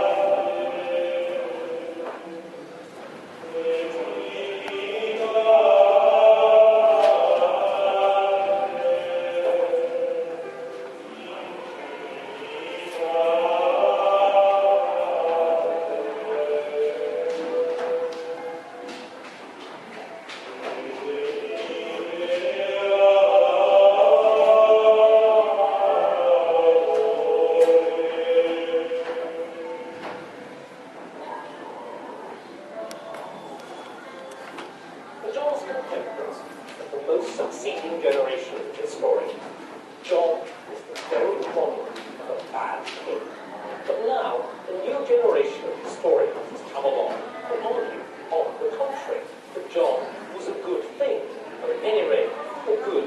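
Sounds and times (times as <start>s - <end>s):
choir singing held notes: 0.0s - 35.1s.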